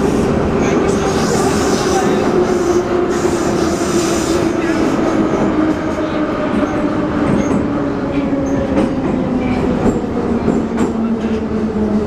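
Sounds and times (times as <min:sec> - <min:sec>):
train wheels rumbling: 0:00.0 - 0:12.0.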